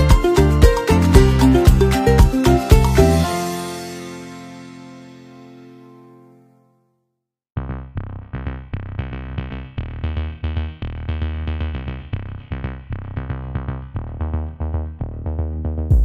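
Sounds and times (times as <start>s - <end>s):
drum machine beat: 0.0s - 3.5s
deep bass line: 0.0s - 3.8s, 7.6s - 16.0s
electronic music: 0.0s - 6.3s.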